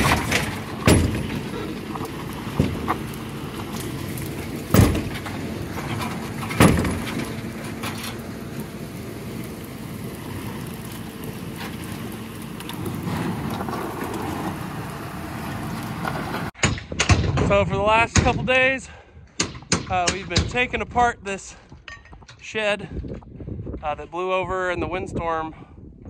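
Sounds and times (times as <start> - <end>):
loud knocks: 0.0 - 1.6, 4.7 - 5.3, 6.5 - 7.3.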